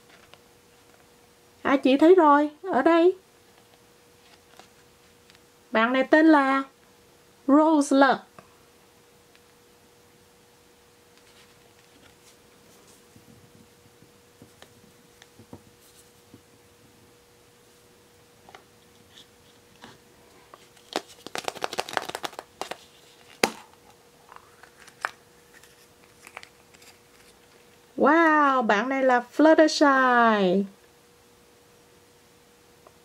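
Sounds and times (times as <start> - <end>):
plastic egg halves snapping apart: 20.8 - 26.9.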